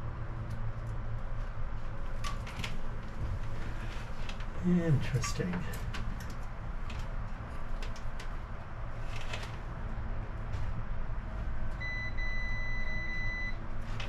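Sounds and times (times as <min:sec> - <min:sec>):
steady low hum: 0:00.0 - 0:14.0
multimeter continuity beep: 0:11.8 - 0:13.6.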